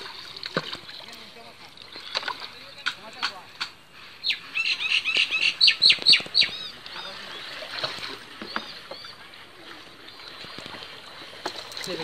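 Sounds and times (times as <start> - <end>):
water splashing from wet net: 0.0 - 3.5, 7.0 - 8.6, 9.6 - 12.0.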